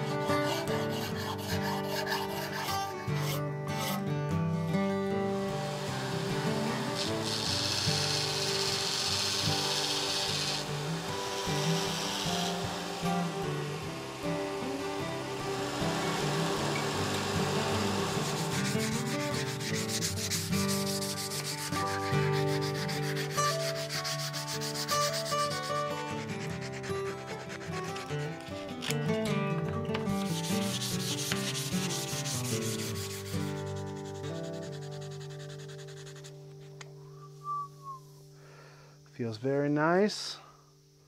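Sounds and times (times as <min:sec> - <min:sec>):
sandpaper rubbing on wood: 0:00.0 - 0:04.0, 0:05.6 - 0:13.8, 0:15.6 - 0:28.8, 0:30.2 - 0:36.8
background music with held notes: 0:00.0 - 0:35.9.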